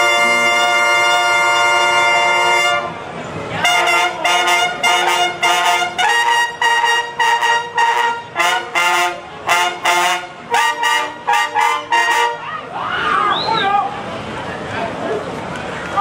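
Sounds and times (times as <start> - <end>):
brass band playing short chords: 0.0 - 3.0, 3.6 - 12.4.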